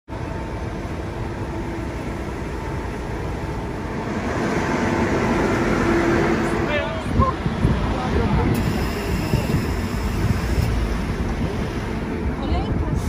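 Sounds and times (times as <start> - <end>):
van driving rumble from inside cab: 5.1 - 13.0.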